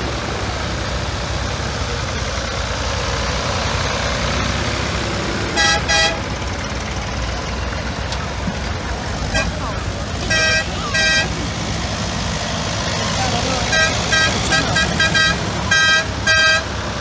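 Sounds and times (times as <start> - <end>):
tractor engines running: 0.0 - 17.0
horn tooting: 5.5 - 6.4, 9.2 - 11.7, 13.2 - 17.0.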